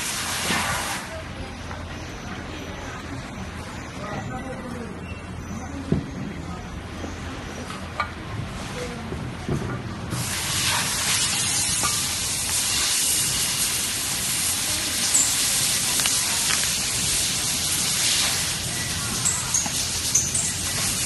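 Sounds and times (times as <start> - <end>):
steady hissing noise: 10.1 - 21.0
faint crackles: 10.4 - 18.6.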